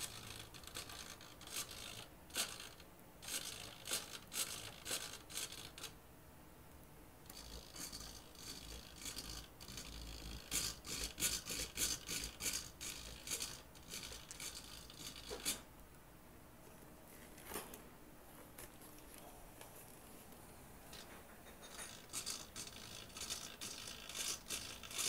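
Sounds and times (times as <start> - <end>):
scraping and rubbing strokes: 21.0 - 25.0.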